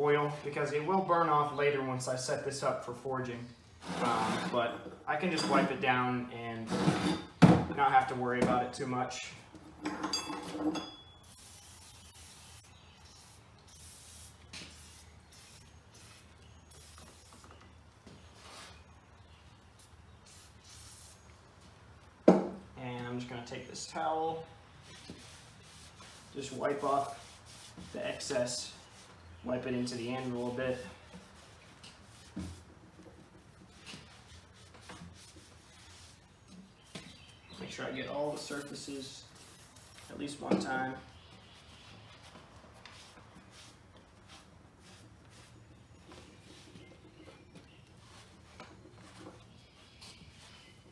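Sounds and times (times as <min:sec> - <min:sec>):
aerosol can spraying: 0:11.2 - 0:17.5
cloth rubbing on metal: 0:24.8 - 0:36.9.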